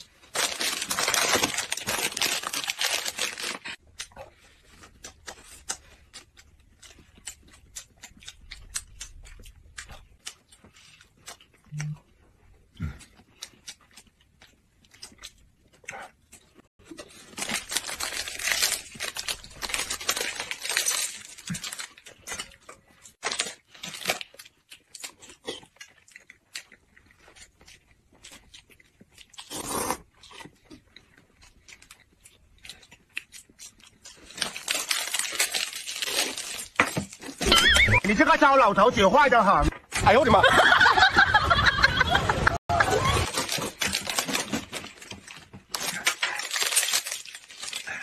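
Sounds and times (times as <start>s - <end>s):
plastic wrapper crinkling: 0.0s - 3.8s, 16.9s - 22.5s, 34.0s - 37.4s, 43.0s - 48.0s
wrapper tearing open: 0.0s - 3.8s, 17.1s - 22.5s, 34.2s - 37.5s, 42.9s - 48.0s
chewing: 3.5s - 17.6s, 20.5s - 37.4s.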